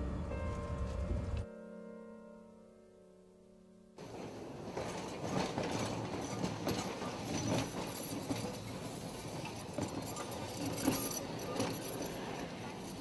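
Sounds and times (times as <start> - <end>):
tram wheels clacking on rails: 4.0 - 13.0.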